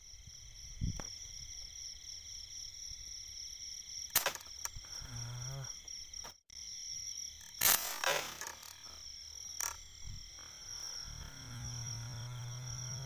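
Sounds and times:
night insects trilling: 0:00.0 - 0:13.0
air gun shot: 0:07.6 - 0:08.5.

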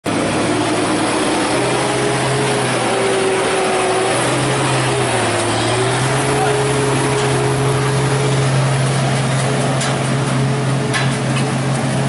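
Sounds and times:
diesel truck engine drone: 0:00.0 - 0:12.0.

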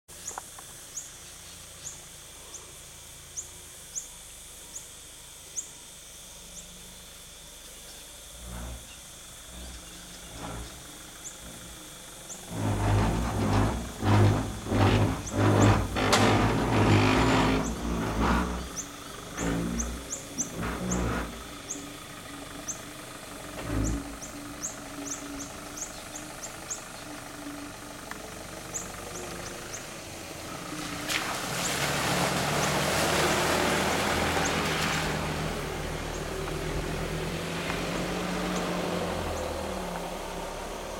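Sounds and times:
truck engine revving hard: 0:08.3 - 0:22.5, 0:23.4 - 0:26.5, 0:28.7 - 0:40.9.

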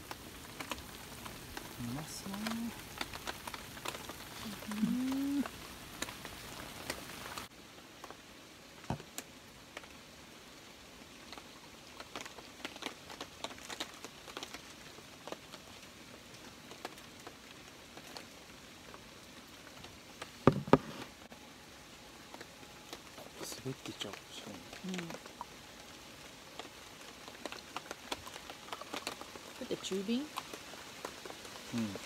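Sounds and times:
pot simmering: 0:00.0 - 0:07.5
rain pattering: 0:00.0 - 0:32.0
glass knocking on table: 0:20.5 - 0:20.9.

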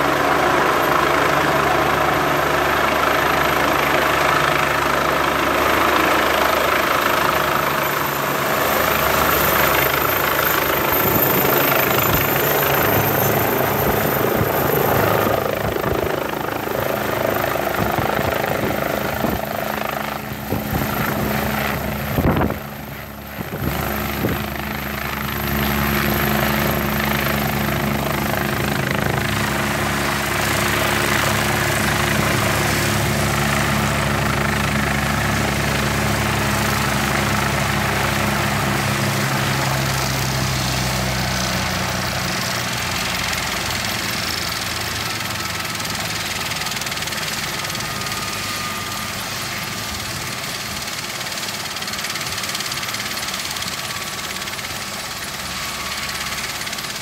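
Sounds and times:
helicopter rotor and turbine: 0:00.0 - 0:57.0.

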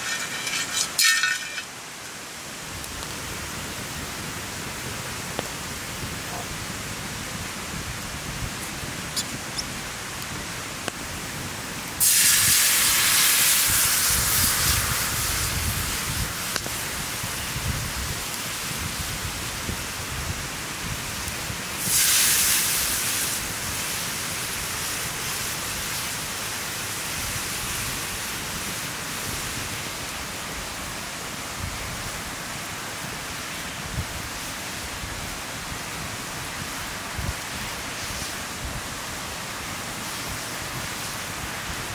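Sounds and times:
sizzling in a skillet: 0:00.0 - 0:04.1, 0:12.0 - 0:30.1
campfire crackling: 0:00.0 - 0:41.9
liquid hissing in hot pan: 0:12.0 - 0:17.8, 0:21.8 - 0:26.2.

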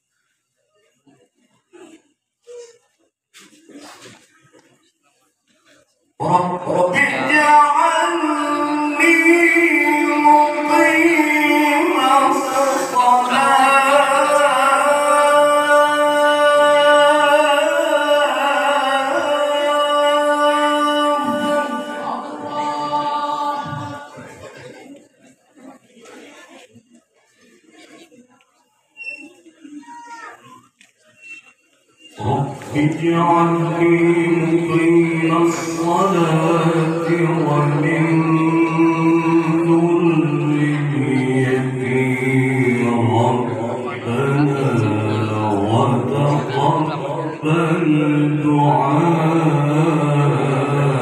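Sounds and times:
man reciting melodically: 0:06.1 - 0:24.6, 0:32.1 - 0:51.0
man chanting through a microphone: 0:06.2 - 0:24.8, 0:32.1 - 0:51.0.

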